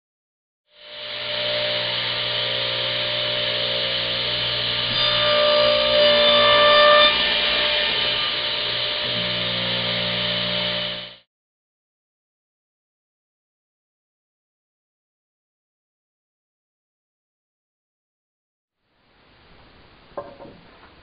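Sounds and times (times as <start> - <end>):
radial arm saw cutting wood: 0.7 - 11.3.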